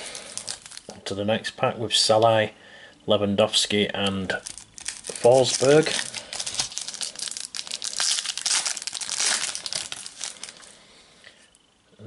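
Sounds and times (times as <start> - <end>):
foil wrapper crinkling: 0.0 - 1.0, 4.3 - 10.7.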